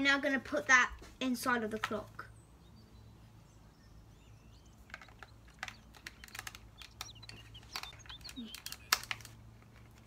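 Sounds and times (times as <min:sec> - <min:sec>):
plastic clicks and taps: 0:04.8 - 0:10.0.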